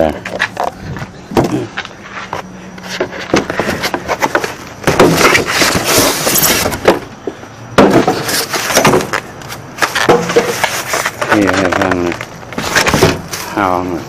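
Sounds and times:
scraping and rustling: 0:00.2 - 0:13.7
box knocks and clicks: 0:03.0 - 0:06.0, 0:07.8 - 0:09.2, 0:09.8 - 0:13.3.

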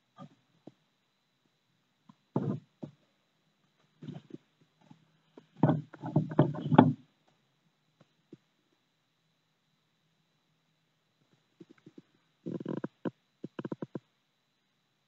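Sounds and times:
tortoise shells knocking and scraping: 0:02.1 - 0:03.0, 0:03.7 - 0:07.1, 0:11.6 - 0:14.0.

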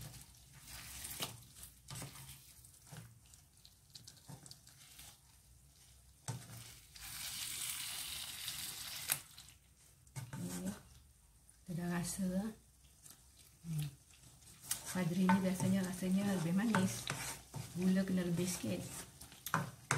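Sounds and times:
sauce sizzling: 0:00.0 - 0:10.0, 0:12.0 - 0:19.9
spatula scraping frying pan: 0:14.2 - 0:19.9.

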